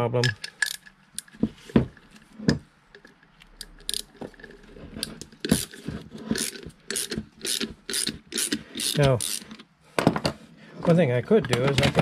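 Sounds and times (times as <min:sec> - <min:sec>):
metal clicks: 0:00.2 - 0:01.4
ratchet wrench clicking: 0:00.3 - 0:01.3, 0:03.6 - 0:04.1, 0:05.5 - 0:09.6.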